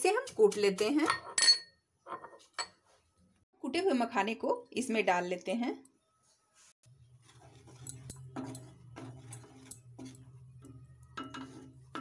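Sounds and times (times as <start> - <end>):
spatula scraping pan: 7.0 - 12.0.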